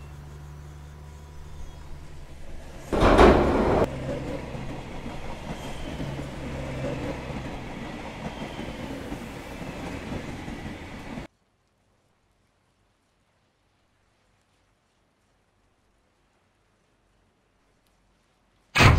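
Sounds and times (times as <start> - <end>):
subway train rumbling: 0.0 - 11.3
loud burst of train noise: 1.7 - 11.3.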